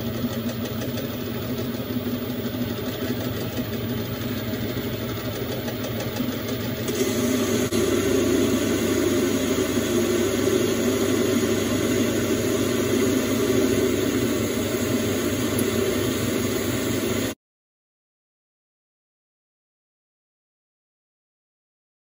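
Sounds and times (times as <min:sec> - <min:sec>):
metal lathe cutting bar: 0:00.0 - 0:17.4.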